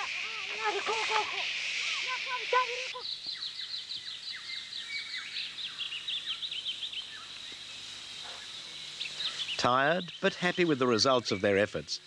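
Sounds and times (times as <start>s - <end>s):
high falling chirps: 0.0s - 4.0s.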